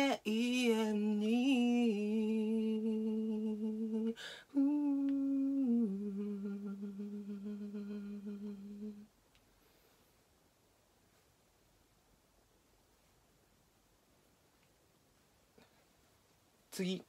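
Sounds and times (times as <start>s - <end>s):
man humming: 1.0s - 9.0s
quick breath: 4.2s - 4.5s.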